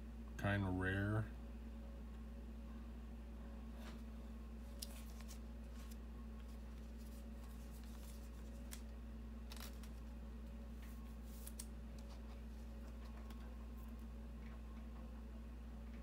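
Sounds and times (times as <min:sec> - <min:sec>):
low electrical hum: 0:00.0 - 0:16.0
trading cards rustling and clicking: 0:04.6 - 0:14.1.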